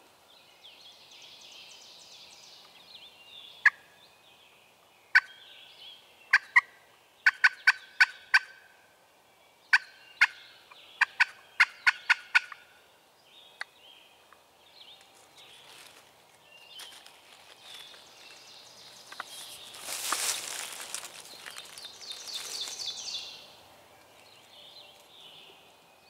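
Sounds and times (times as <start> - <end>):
turkey clucking: 6.3 - 8.6, 11.0 - 12.7.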